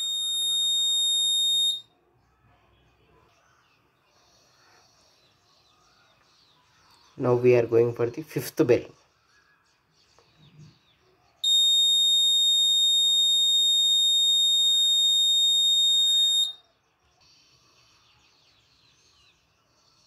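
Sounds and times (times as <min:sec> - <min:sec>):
high-pitched buzzer beep: 0:00.0 - 0:01.8, 0:11.4 - 0:16.6.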